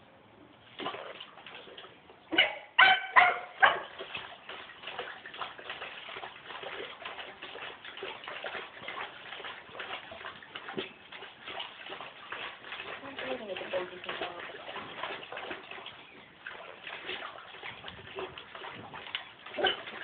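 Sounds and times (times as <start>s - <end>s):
dog splashing in water: 0.6s - 20.0s
dog yipping: 2.3s - 3.9s.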